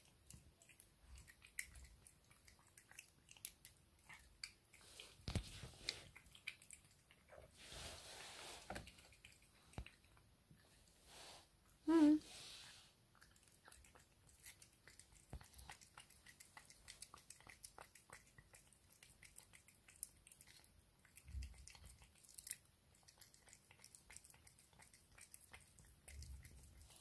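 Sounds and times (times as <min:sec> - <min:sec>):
cat licking and chewing food: 0:00.0 - 0:27.0.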